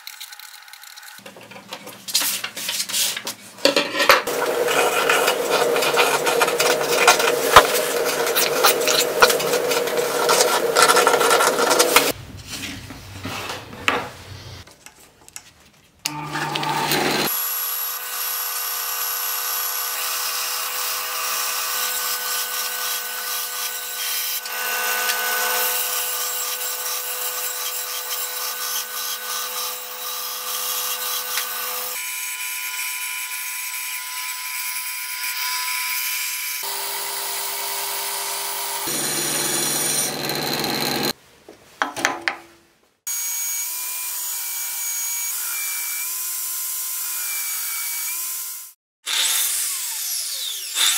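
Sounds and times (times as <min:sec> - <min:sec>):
band saw cutting wood: 0:04.2 - 0:12.2, 0:16.1 - 0:41.2, 0:43.1 - 0:50.9
scratching: 0:04.2 - 0:12.2.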